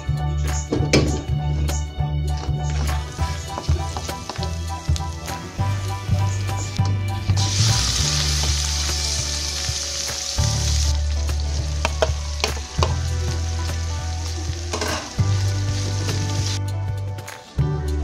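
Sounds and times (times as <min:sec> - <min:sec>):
oil sizzling in a wok: 0:02.8 - 0:16.6
spatula scraping and knocking pan: 0:14.7 - 0:15.2.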